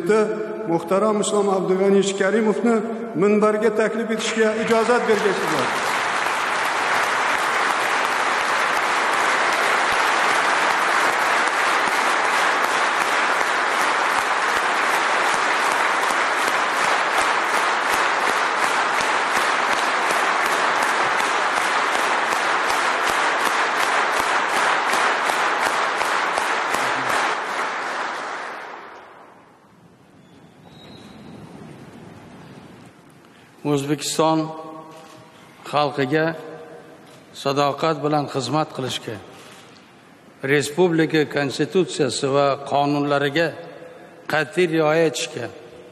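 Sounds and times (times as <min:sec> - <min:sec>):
audience clapping in unison: 0:04.2 - 0:29.7, 0:39.3 - 0:39.6.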